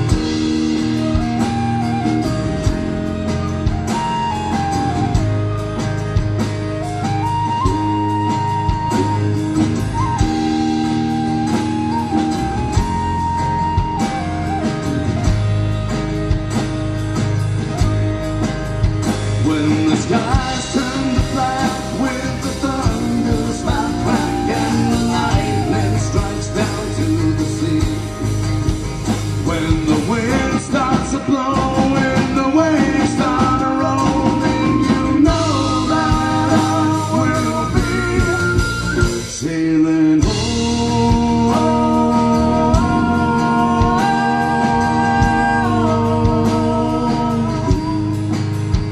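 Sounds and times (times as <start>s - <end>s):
folk-rock band playing: 0.0s - 48.9s.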